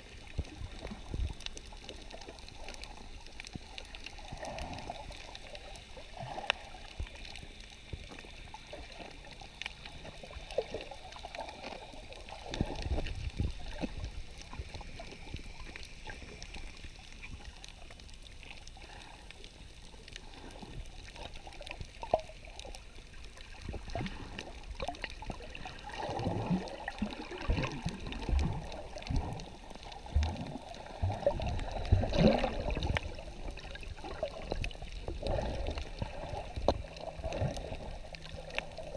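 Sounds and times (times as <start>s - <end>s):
bubbling water: 0.0s - 38.9s
underwater sloshing and gurgling: 0.0s - 38.9s.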